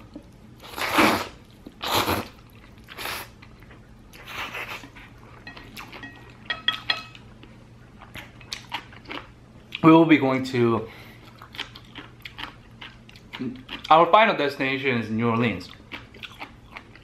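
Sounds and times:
person slurping noodles: 0:00.6 - 0:02.4
chewing and mouth clicks: 0:02.4 - 0:09.8, 0:11.2 - 0:14.0, 0:15.6 - 0:17.0.

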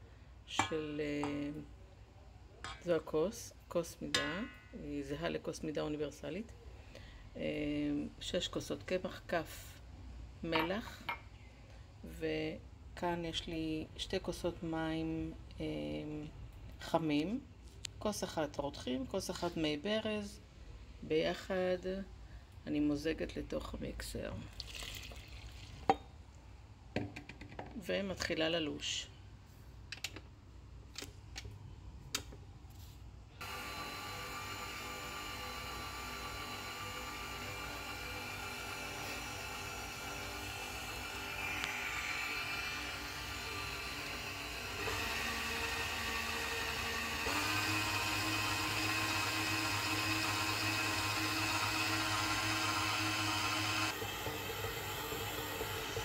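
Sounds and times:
stand mixer motor whine: 0:33.4 - 0:56.0.

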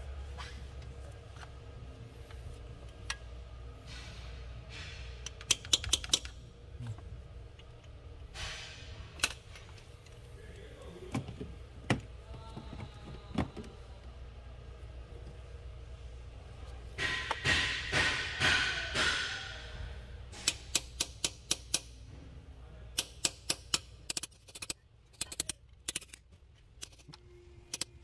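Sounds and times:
hammer striking a chisel: 0:17.0 - 0:19.6.

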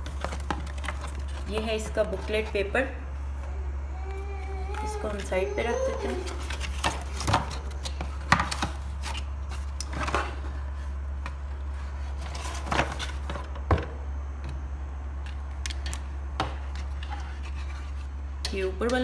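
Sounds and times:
cardboard scraping and rustling: 0:11.7 - 0:13.4.

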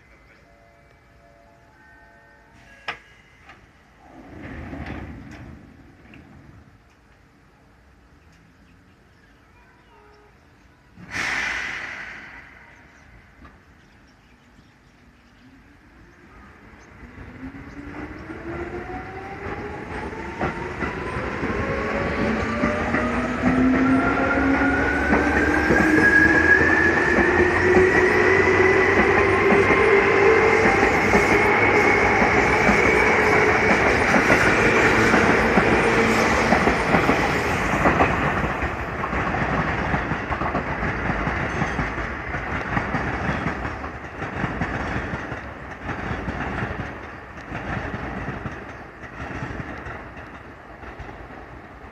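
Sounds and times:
wheels clicking over rail joints: 0:19.4 - 0:51.9.

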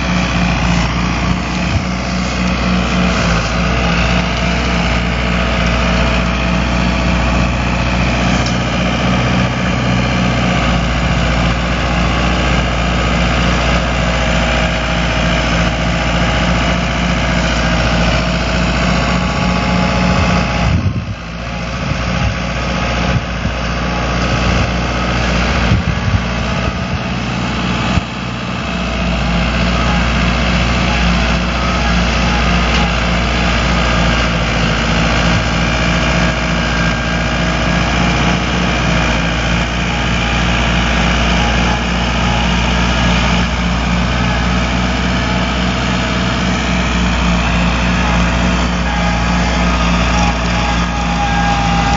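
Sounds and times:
rotary slasher cutting grass: 0:00.0 - 0:21.1
tractor diesel engine running: 0:00.0 - 0:51.9.

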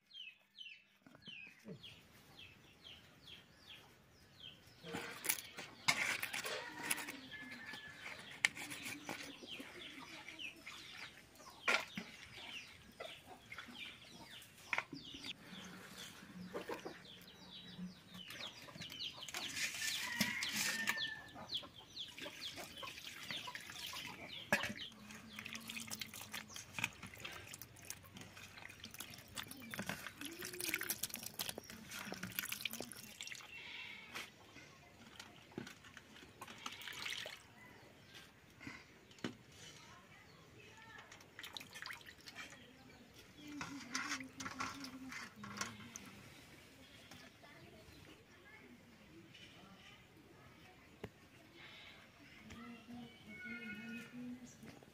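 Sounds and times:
water pouring: 0:22.4 - 0:33.6, 0:35.9 - 0:37.5, 0:41.4 - 0:42.6.

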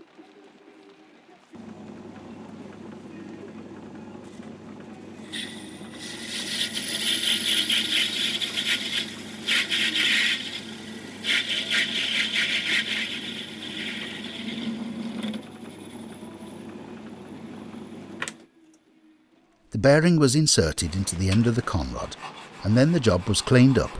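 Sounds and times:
lathe humming: 0:01.6 - 0:18.2, 0:20.6 - 0:23.9
tool scraping spinning metal: 0:05.3 - 0:16.1, 0:20.8 - 0:23.9.

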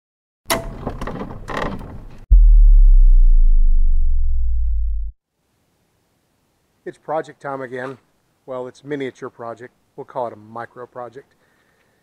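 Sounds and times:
heavy low boom: 0:02.3 - 0:05.2.

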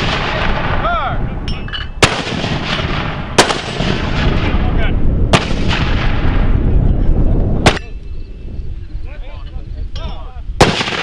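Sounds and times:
mortar rounds firing: 0:00.0 - 0:00.8, 0:02.0 - 0:06.5, 0:10.6 - 0:11.0
heavy low rumble: 0:00.0 - 0:10.7.

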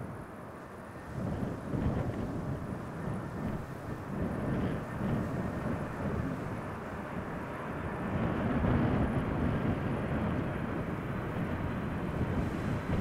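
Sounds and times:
jet engines rumbling: 0:00.0 - 0:13.0
wind gusting on microphone: 0:00.0 - 0:13.0.

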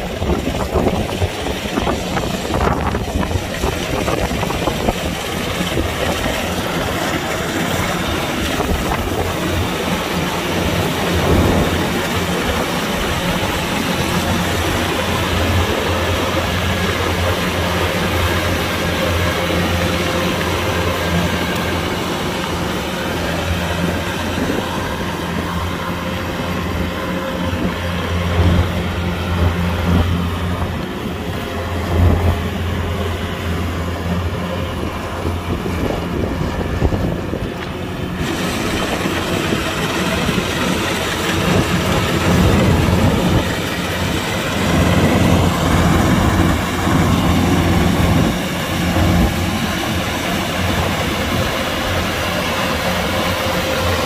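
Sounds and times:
combine harvester engine drone: 0:00.0 - 0:54.0.

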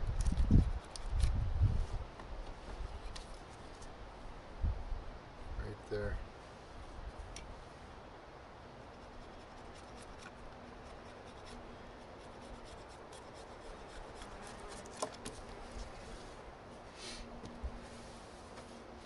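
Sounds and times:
knife scraping wood: 0:08.9 - 0:16.0.

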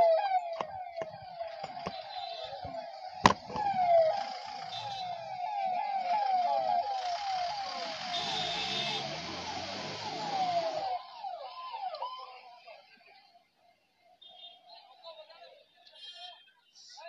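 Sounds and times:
police siren sweeping: 0:00.0 - 0:12.9
passing traffic: 0:06.2 - 0:11.1.

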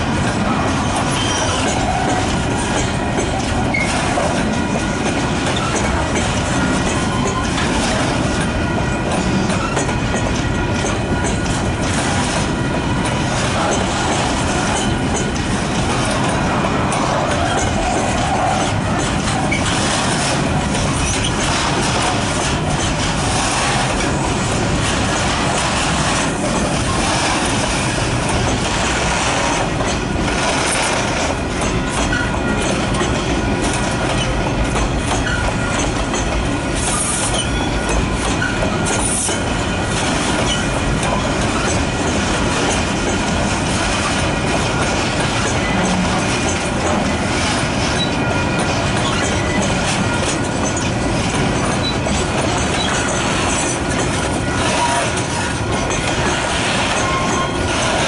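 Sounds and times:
steel wheels rumbling on rails: 0:00.0 - 0:58.0
wheels clacking over rail joints: 0:00.0 - 0:58.0
high wheel squeals: 0:00.9 - 0:01.9, 0:56.8 - 0:57.9.

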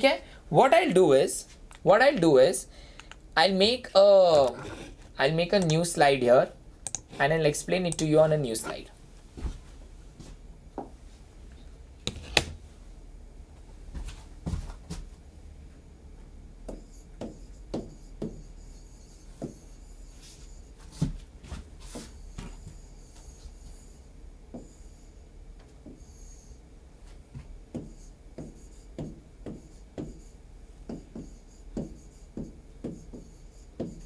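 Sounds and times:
scratchy pen strokes: 0:27.8 - 0:34.0.

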